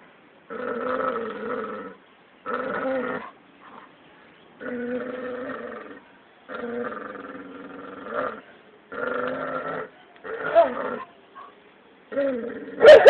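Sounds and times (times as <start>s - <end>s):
dog growling: 0.5s - 3.3s, 4.6s - 11.1s.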